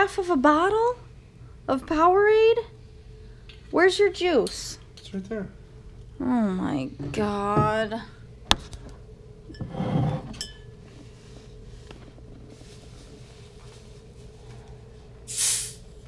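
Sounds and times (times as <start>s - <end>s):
bottle cap hiss: 15.3s - 15.8s.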